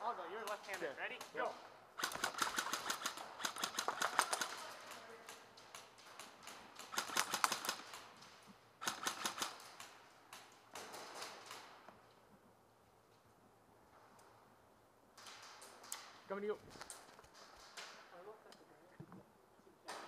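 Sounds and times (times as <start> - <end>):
airsoft guns firing bursts: 0.4 - 8.2, 8.8 - 11.8.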